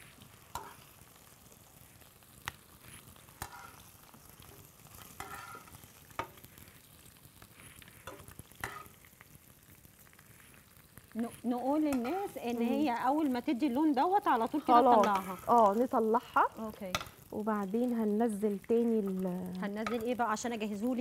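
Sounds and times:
meat sizzling in oil: 0.0 - 21.0
metal tongs clicking against pan: 0.5 - 0.8, 8.0 - 8.9, 11.8 - 12.6, 14.4 - 15.8, 16.9 - 17.4, 18.6 - 20.2.

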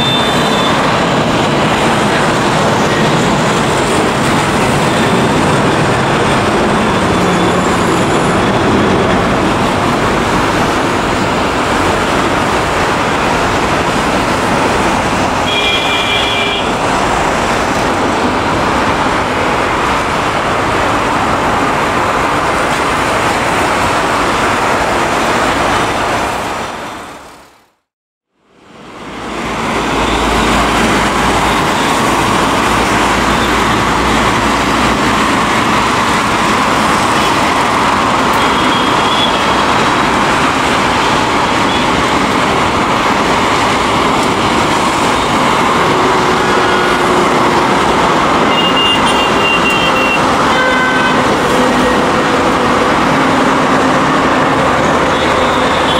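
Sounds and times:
jet engines roaring: 0.0 - 26.7, 28.5 - 55.9.

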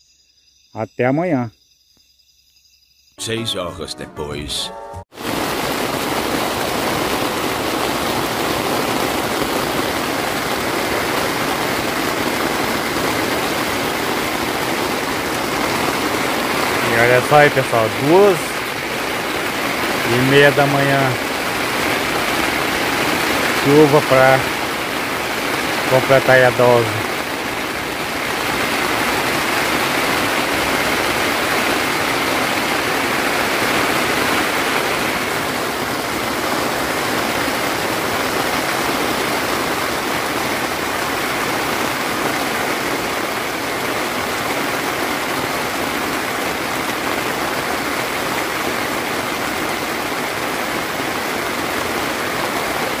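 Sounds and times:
heavy rain pouring: 5.1 - 53.0.

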